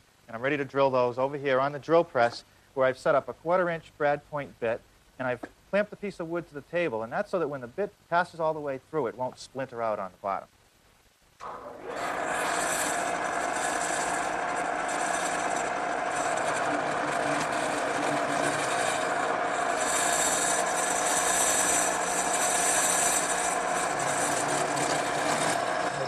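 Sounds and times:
drill bit rasping through wood: 11.4s - 26.0s
drill press motor hum: 11.4s - 26.0s.

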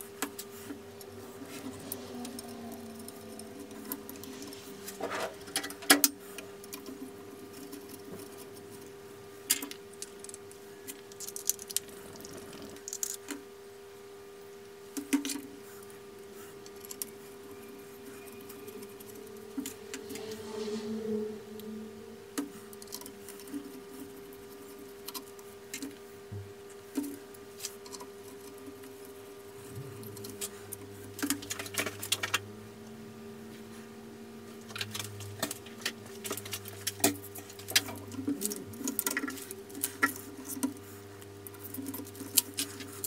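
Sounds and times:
steady low hum: 0.0s - 43.0s
small metal parts clicking: 12.8s - 13.4s.

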